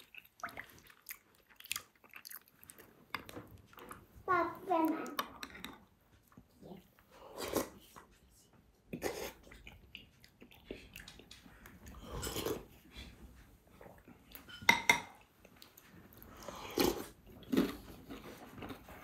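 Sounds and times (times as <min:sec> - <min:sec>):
chewing: 0:00.0 - 0:04.1, 0:05.1 - 0:19.0
slurping: 0:07.1 - 0:08.0, 0:15.6 - 0:19.0.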